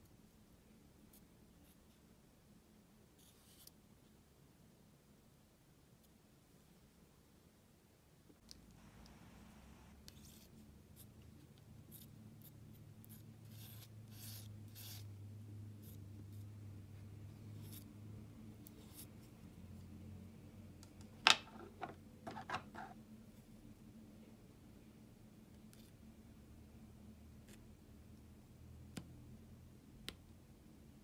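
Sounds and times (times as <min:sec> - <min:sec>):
palette knife scraping paint: 0:11.8 - 0:15.2, 0:17.5 - 0:17.9.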